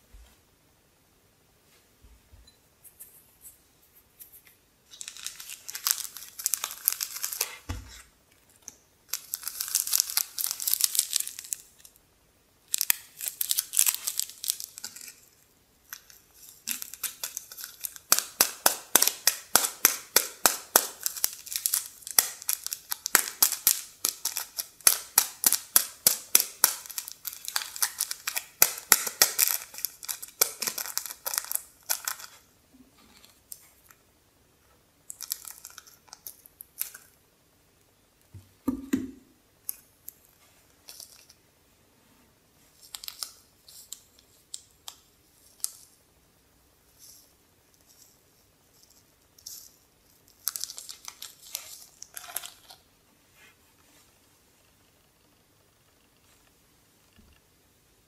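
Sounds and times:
plastic sachet crinkling: 0:04.9 - 0:07.7, 0:08.5 - 0:12.0, 0:12.7 - 0:32.5, 0:35.1 - 0:37.1, 0:42.7 - 0:45.9, 0:48.8 - 0:52.9.

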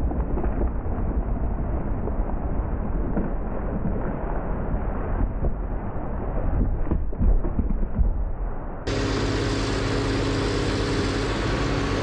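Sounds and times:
diesel engine running: 0:08.9 - 0:12.0.

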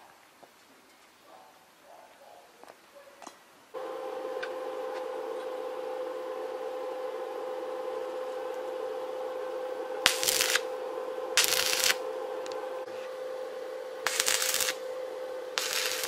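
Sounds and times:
steady hum: 0:03.8 - 0:16.0
welding arc crackle: 0:03.8 - 0:16.0.

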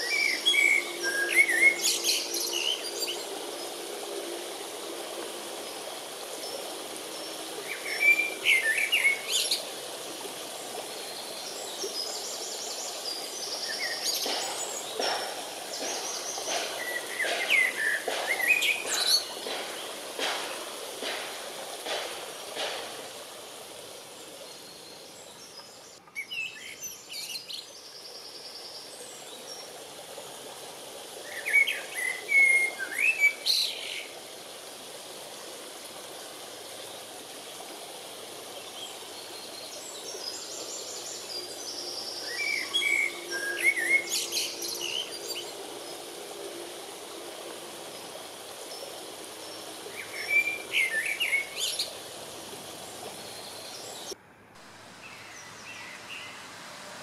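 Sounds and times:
songbird chirps and trills: 0:00.0 - 0:21.2, 0:36.6 - 0:54.2
steady background hiss: 0:00.0 - 0:57.0.

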